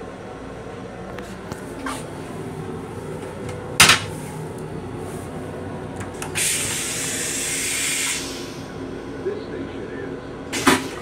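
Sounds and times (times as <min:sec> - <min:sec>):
toilet mechanism clunk: 0:03.4 - 0:04.2, 0:10.5 - 0:11.0.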